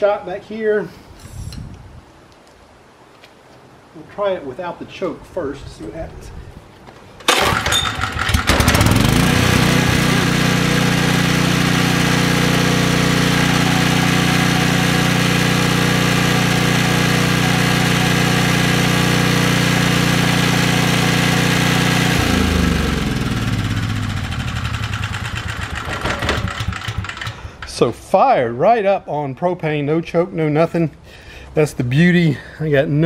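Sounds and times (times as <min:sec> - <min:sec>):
generator engine running: 0:07.3 - 0:27.7.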